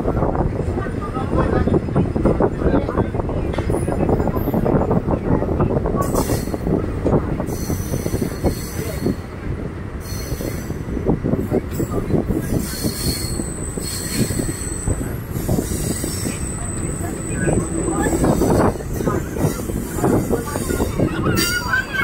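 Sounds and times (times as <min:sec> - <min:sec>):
train wheels rumbling on rails: 0:00.0 - 0:22.0
high-pitched wheel squeal: 0:12.6 - 0:22.0.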